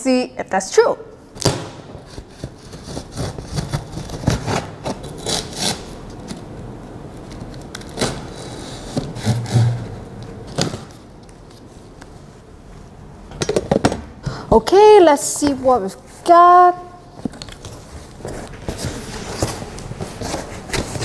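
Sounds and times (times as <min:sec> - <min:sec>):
knife slitting packing tape: 0:01.4 - 0:06.4, 0:07.5 - 0:09.9
cardboard scraping and rubbing: 0:02.0 - 0:05.9, 0:07.9 - 0:10.0, 0:17.8 - 0:21.0.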